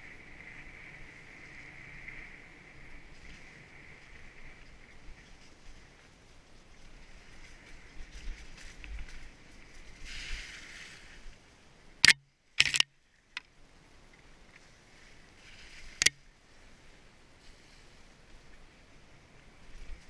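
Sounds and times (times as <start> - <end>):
bike tyres hissing: 7.0 - 11.4.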